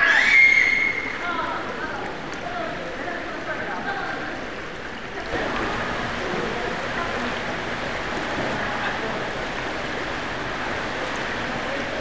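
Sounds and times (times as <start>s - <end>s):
pool water splashing: 0.0s - 12.0s
faint voices: 0.9s - 12.0s.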